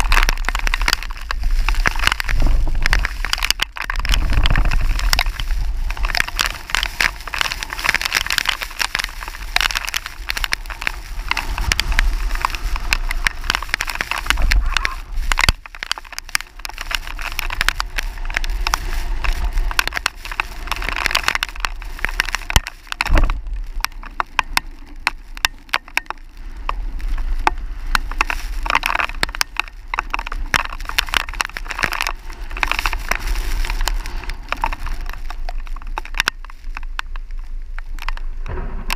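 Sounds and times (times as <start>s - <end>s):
wind buffeting microphone: 0.0s - 15.7s, 16.6s - 30.9s
dense crackling clicks: 0.0s - 38.9s.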